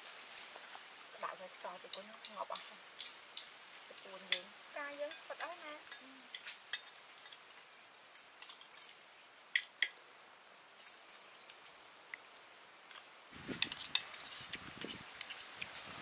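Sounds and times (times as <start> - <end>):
cutlery clicking on plates: 1.9 - 3.5.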